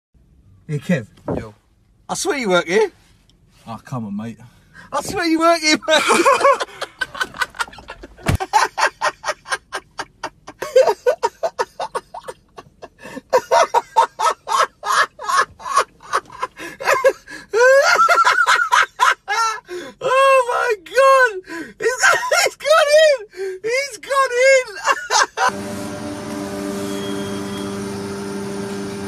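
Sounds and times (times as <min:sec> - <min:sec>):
man laughing hysterically: 0:05.6 - 0:20.4, 0:21.8 - 0:25.5.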